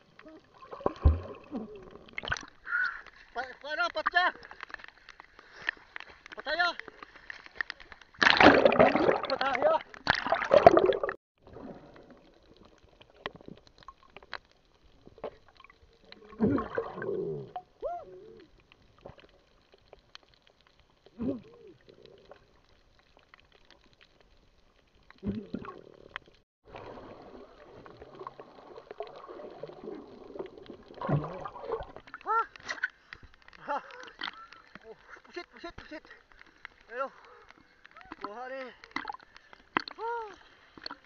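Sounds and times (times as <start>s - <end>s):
bubbles gurgling: 0.0s - 2.7s, 8.2s - 14.3s, 15.1s - 19.4s, 25.1s - 32.4s
underwater clicks and crackles: 0.0s - 41.0s.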